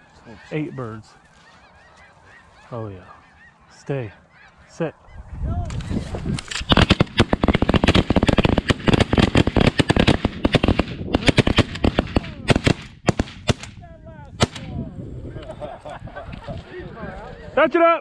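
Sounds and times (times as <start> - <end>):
shotgun fire volley: 6.7 - 13.8.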